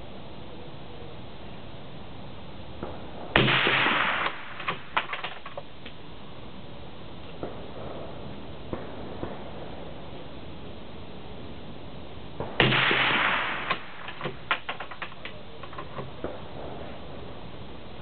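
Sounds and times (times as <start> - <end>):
suppressed rifle shot: 2.8 - 5.7, 12.4 - 16.4.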